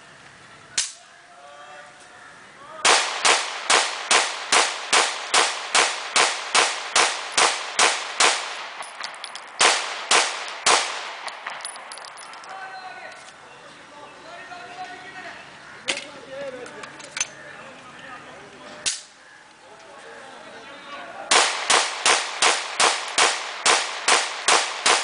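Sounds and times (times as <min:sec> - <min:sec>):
pistol shots: 0:02.9 - 0:11.9, 0:21.3 - 0:25.0.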